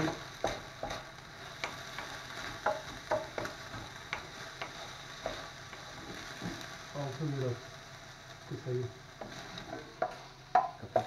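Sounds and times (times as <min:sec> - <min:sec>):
wooden spatula scraping a pan: 0:00.0 - 0:06.9, 0:09.2 - 0:11.0
meat sizzling in a frying pan: 0:00.0 - 0:11.0.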